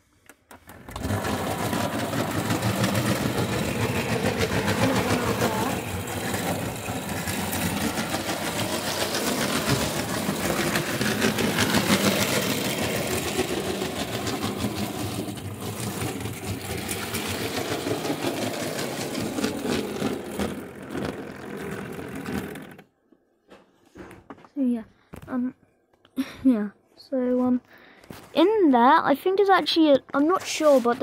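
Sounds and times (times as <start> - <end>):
wheels clattering on rails: 0.7 - 22.8.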